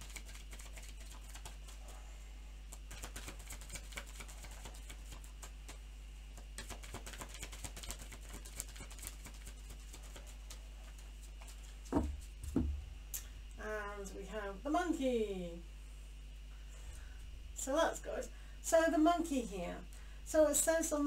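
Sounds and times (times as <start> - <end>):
cards being shuffled: 0.0 - 1.8, 2.7 - 5.8, 6.4 - 12.6.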